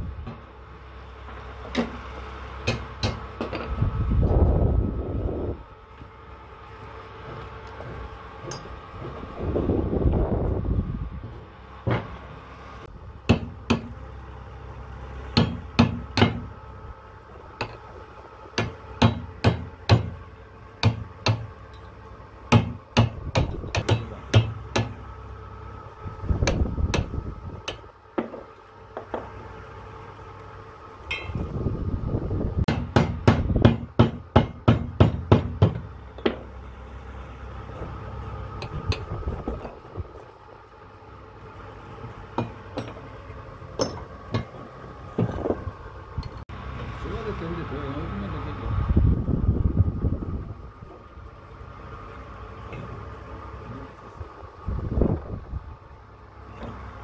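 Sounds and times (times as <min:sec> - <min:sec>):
low background rumble: 0:00.0 - 0:57.0
hammer striking metal punch: 0:02.6 - 0:03.6, 0:13.3 - 0:13.9, 0:15.4 - 0:16.5, 0:18.6 - 0:20.2, 0:20.8 - 0:21.5, 0:22.5 - 0:25.0, 0:31.1 - 0:31.4, 0:32.7 - 0:36.5, 0:43.8 - 0:44.6.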